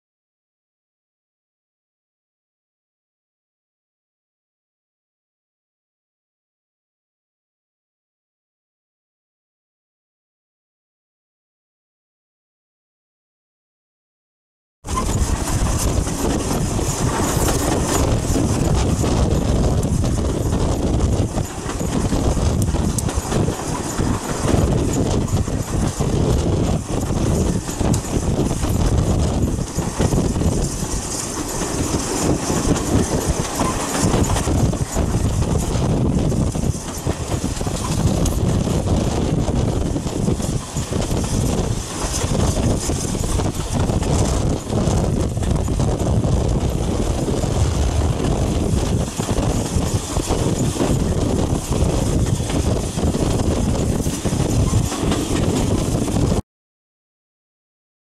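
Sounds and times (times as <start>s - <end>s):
train wheels rumbling on rail: 14.8s - 56.4s.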